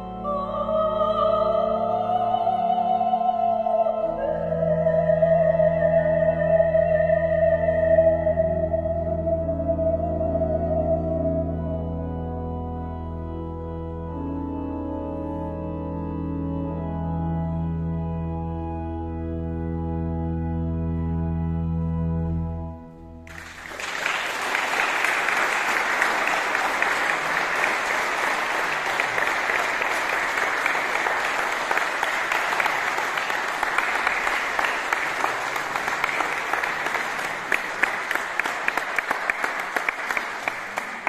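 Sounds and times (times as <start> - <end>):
organ chord: 0.0 - 41.0
audience applauding: 23.3 - 41.0.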